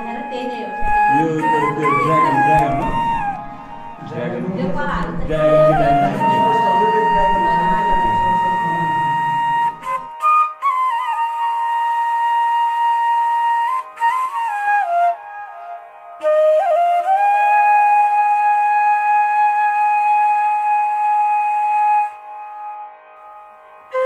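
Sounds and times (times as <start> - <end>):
solo flute music: 0.0 - 4.3, 4.9 - 24.0.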